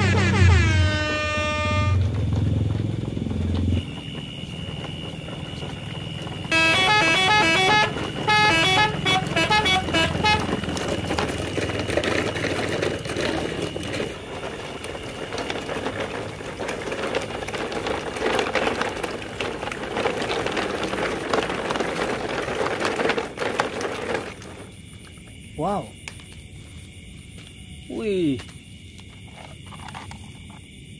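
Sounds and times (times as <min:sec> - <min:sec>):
horn playing a short tune: 0:00.0 - 0:02.0, 0:06.5 - 0:10.5
toy truck wheels on gravel: 0:00.0 - 0:25.2, 0:28.9 - 0:30.6.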